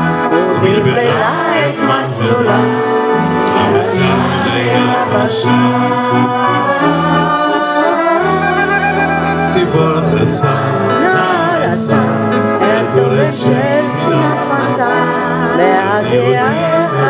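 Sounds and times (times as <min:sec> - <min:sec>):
accordion chords: 0:00.0 - 0:17.0
flute melody with vibrato: 0:00.0 - 0:17.0.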